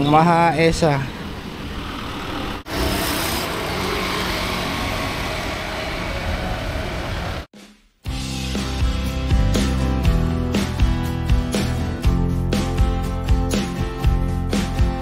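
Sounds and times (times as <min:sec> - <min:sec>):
cars and motorbikes passing: 0:00.9 - 0:07.5.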